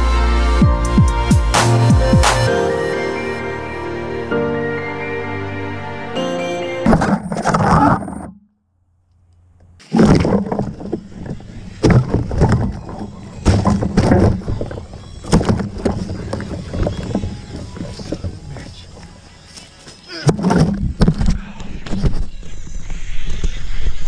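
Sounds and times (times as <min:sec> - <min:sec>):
background music: 0:00.0 - 0:07.1.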